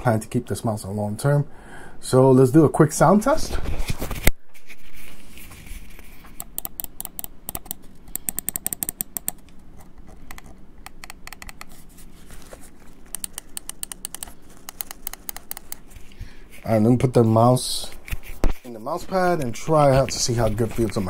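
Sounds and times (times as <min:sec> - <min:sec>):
computer mouse clicking: 0:06.3 - 0:11.8, 0:13.1 - 0:15.9.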